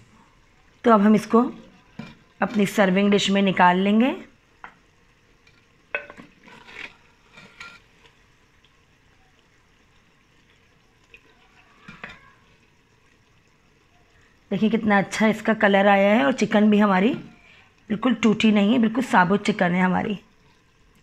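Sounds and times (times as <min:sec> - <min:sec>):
wooden spoon scraping clay pot: 0:06.0 - 0:08.2.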